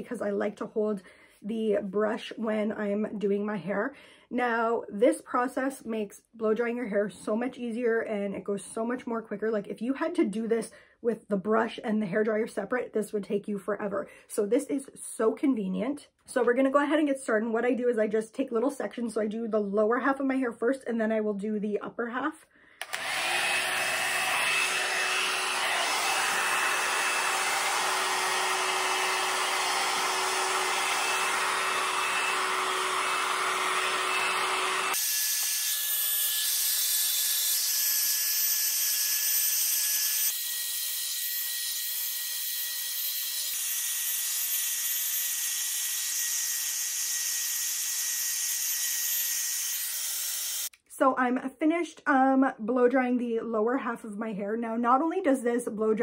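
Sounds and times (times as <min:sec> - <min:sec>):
hair dryer blowing: 0:22.8 - 0:35.5.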